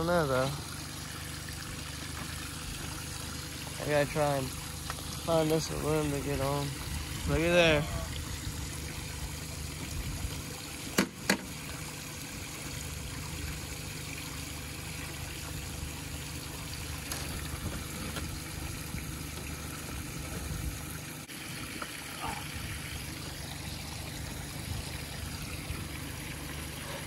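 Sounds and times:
sharp knocks: 11.0s - 11.5s.

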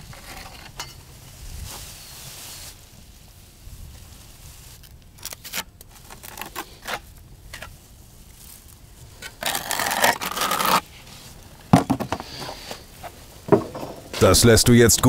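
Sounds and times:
trowel scraping mortar: 9.2s - 10.8s.

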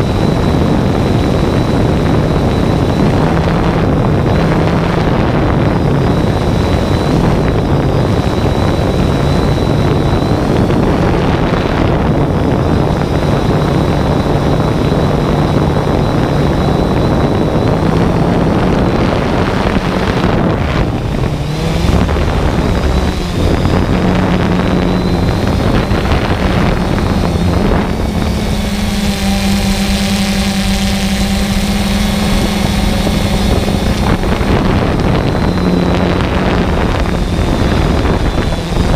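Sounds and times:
drone propellers buzzing: 0.0s - 38.9s
wind rushing over microphone: 0.0s - 38.9s.

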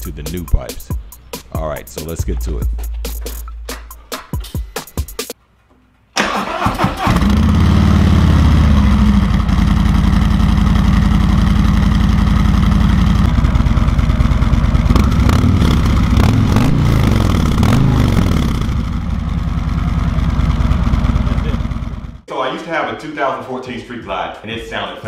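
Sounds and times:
motorcycle starter cranking: 6.2s - 8.6s
motorcycle engine idling and revving: 6.7s - 22.3s.

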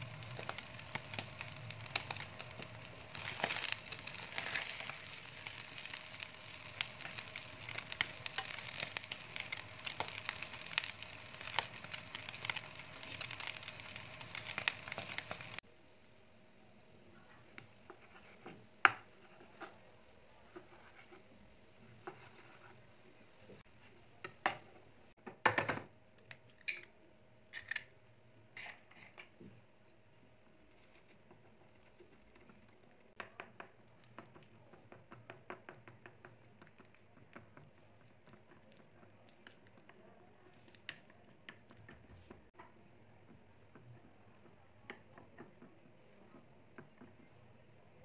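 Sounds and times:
utensil stirring batter in bowl: 30.5s - 47.2s.

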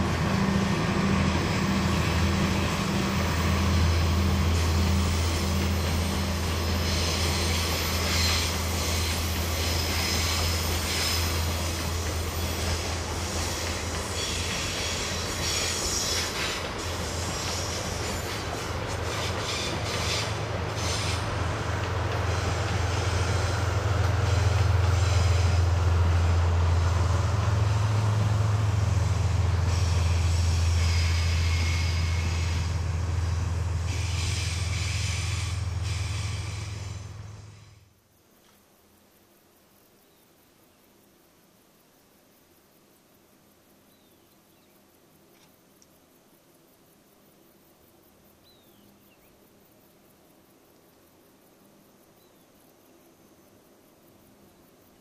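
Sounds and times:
rail clicks: 0.0s - 28.8s
diesel train engine droning: 0.0s - 38.0s.

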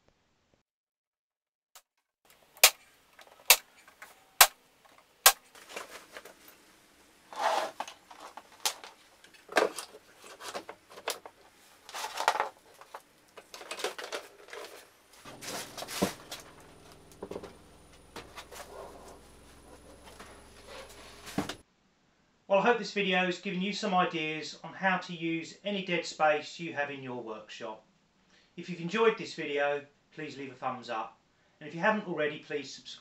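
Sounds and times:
low steady hum: 2.4s - 21.6s
brad nailer firing: 2.6s - 3.7s, 5.2s - 5.5s
saw handled and set down: 7.3s - 17.6s.

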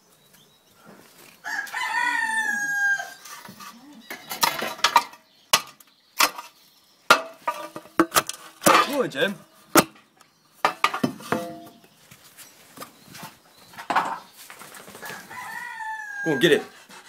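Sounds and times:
rooster crowing: 1.4s - 3.2s, 15.0s - 16.7s
sharp knocks and clatters: 9.7s - 11.8s.

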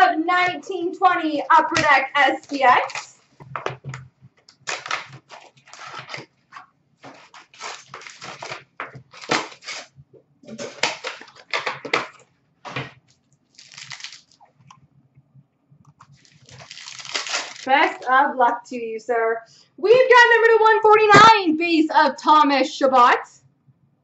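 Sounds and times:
packaging crinkling and rustling: 1.4s - 14.7s, 16.0s - 18.1s
foil card packs torn open: 4.5s - 6.3s, 7.0s - 9.9s, 10.5s - 12.9s, 13.5s - 14.4s, 16.2s - 17.7s.

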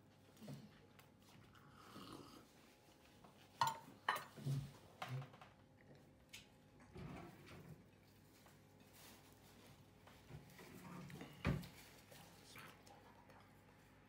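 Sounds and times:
soft handling sound: 7.7s - 13.1s.

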